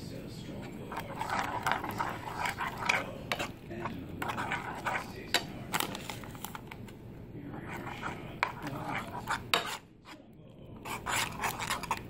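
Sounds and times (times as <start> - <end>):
metal spoon scraping frying pan: 0.9 - 6.1, 7.7 - 9.8, 10.8 - 12.0.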